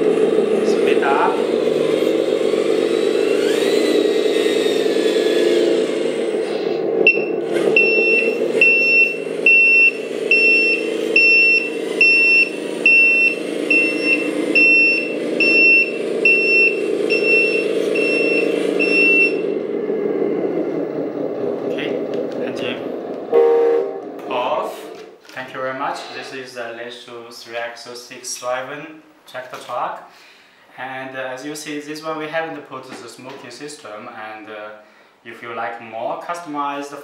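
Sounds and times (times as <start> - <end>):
simulated diesel engine running: 0.0 - 25.0
reversing warning beeper: 7.0 - 20.5, 23.3 - 24.1.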